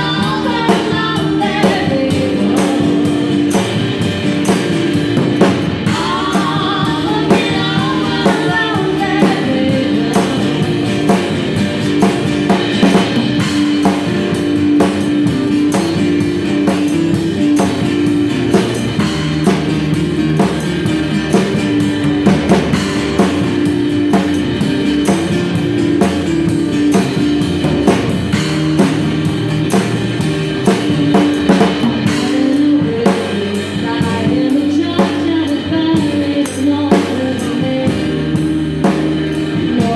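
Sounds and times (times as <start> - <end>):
woman singing: 0.0 - 3.6, 5.8 - 11.1, 30.8 - 38.4, 39.5 - 39.9
acoustic guitars: 0.0 - 39.9
drum kit played with sticks: 0.0 - 39.9
upright double bass: 0.0 - 39.9.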